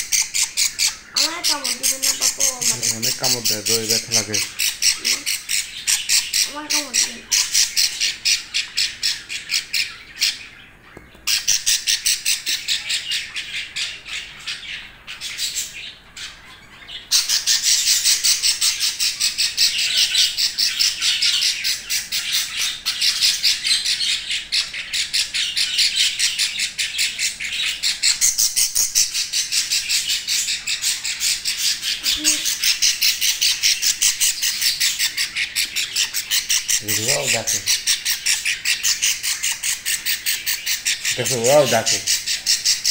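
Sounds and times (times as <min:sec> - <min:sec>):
budgerigars squawking: 0:00.0 - 0:42.9.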